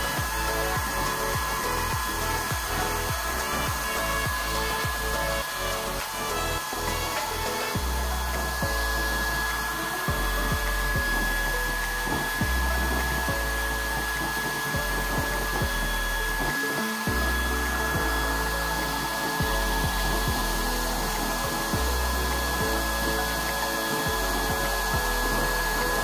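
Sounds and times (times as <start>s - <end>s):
electric blower fan whining: 0.0s - 26.0s.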